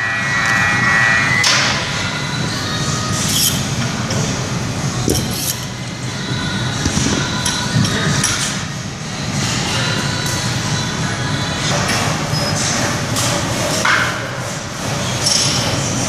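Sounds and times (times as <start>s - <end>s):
high ringing: 0.0s - 3.6s
room hum: 0.0s - 16.0s.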